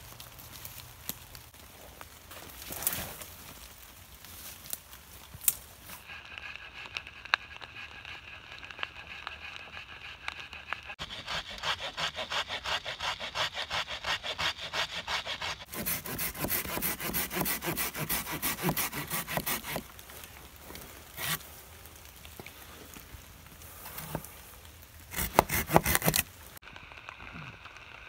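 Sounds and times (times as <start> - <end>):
saw cutting through branch: 9.0 - 20.0, 21.1 - 21.4, 25.1 - 26.3.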